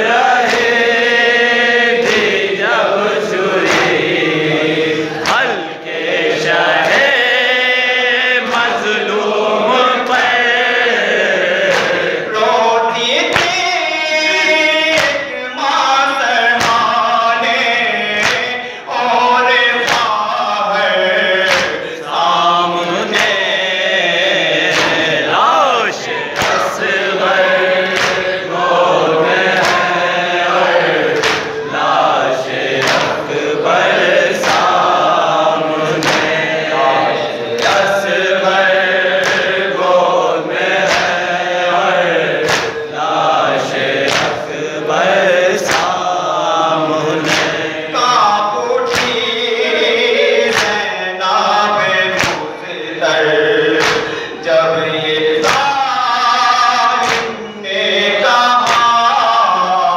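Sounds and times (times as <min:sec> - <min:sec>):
men chanting: 0:00.0 - 0:59.9
chest-beating slaps: 0:00.4 - 0:00.9, 0:02.0 - 0:02.5, 0:03.6 - 0:04.2, 0:05.2 - 0:05.6, 0:11.6 - 0:12.1, 0:15.0 - 0:15.2, 0:16.6 - 0:16.9, 0:18.2 - 0:18.6, 0:19.8 - 0:20.2, 0:24.6 - 0:25.2, 0:26.0 - 0:27.0, 0:27.7 - 0:30.1, 0:30.9 - 0:31.8, 0:32.5 - 0:33.3, 0:34.2 - 0:34.9, 0:35.9 - 0:36.9, 0:39.1 - 0:39.6, 0:40.6 - 0:41.2, 0:42.3 - 0:42.9, 0:44.0 - 0:44.4, 0:45.6 - 0:46.0, 0:47.2 - 0:47.6, 0:48.9 - 0:49.2, 0:50.5 - 0:50.8, 0:52.1 - 0:52.5, 0:53.8 - 0:54.2, 0:55.4 - 0:55.7, 0:57.0 - 0:57.4, 0:58.6 - 0:58.9
man singing into microphone: 0:12.3 - 0:24.5, 0:47.9 - 0:59.9.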